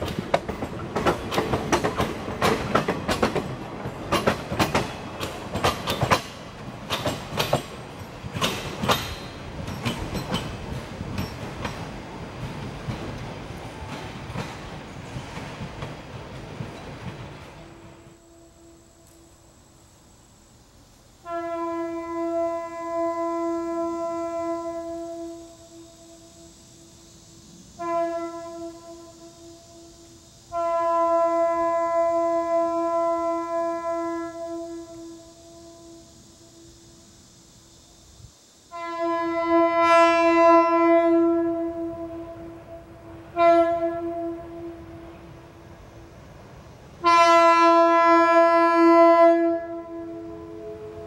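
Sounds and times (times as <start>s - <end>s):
steam locomotive whistle: 17.6s - 19.5s, 21.2s - 37.2s, 38.7s - 45.7s, 47.0s - 51.0s
train horn blast: 17.6s - 19.5s, 21.2s - 26.6s, 27.8s - 37.1s, 38.7s - 45.7s, 47.0s - 51.0s.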